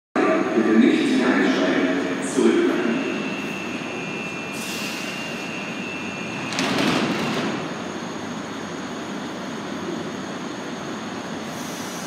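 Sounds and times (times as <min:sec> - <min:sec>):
low station rumble: 0:00.2 - 0:12.0
steady high-pitched tone: 0:02.2 - 0:06.4
train doors closing with clatter: 0:04.5 - 0:07.9.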